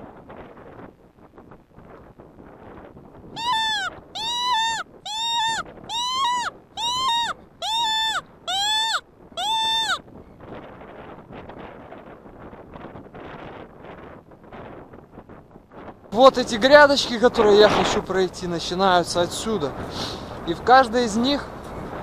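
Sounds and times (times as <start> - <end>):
wind noise on microphone: 0.0 - 22.0
predator call squalls: 3.4 - 10.0.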